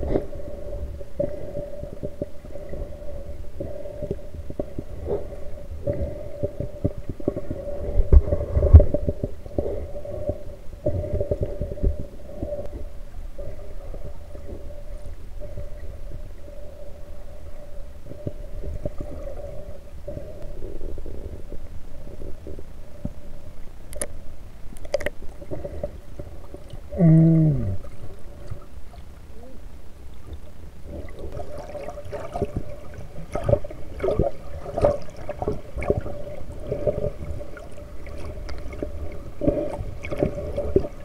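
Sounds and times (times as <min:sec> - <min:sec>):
underwater low rumble: 0:00.0 - 0:41.0.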